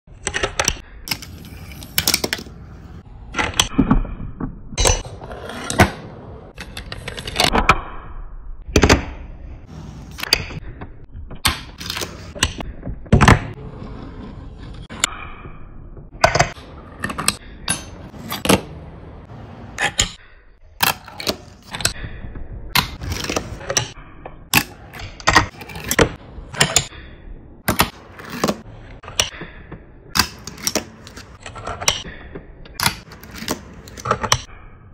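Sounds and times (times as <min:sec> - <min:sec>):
fingerboard wheels rolling: 0:05.0 - 0:07.4, 0:11.8 - 0:15.1.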